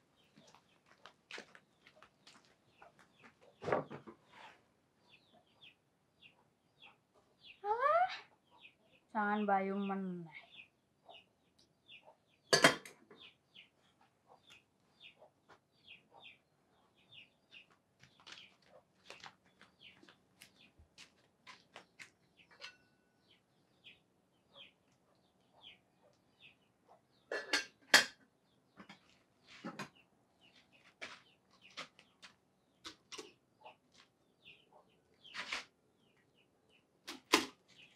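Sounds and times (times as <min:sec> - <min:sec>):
small birds chirping: 0:00.0 - 0:37.9
dishes clattering: 0:12.5 - 0:13.0, 0:27.3 - 0:28.2.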